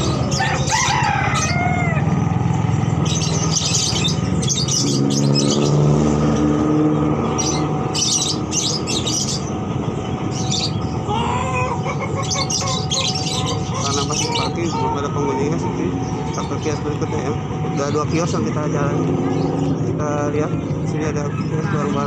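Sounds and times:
rooster-like crow: 0.0 - 2.3
caged birds chirping: 0.0 - 22.0
low rumble: 6.0 - 22.0.

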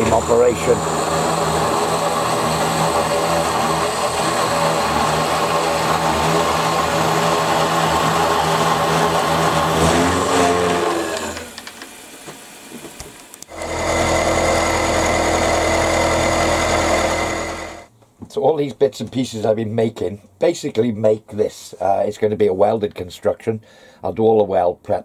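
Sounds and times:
milling machine cutting metal: 0.0 - 12.0, 13.4 - 17.9
spindle motor winding down: 0.0 - 12.0, 13.4 - 17.9.

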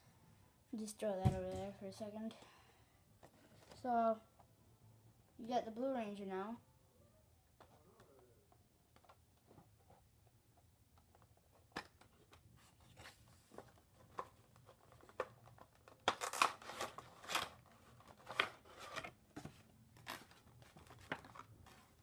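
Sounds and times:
cardboard and plastic rustling: 3.2 - 3.9, 11.1 - 22.0.

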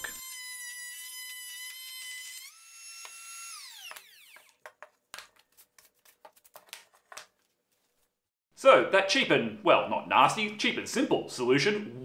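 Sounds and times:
router whining: 0.0 - 4.6.

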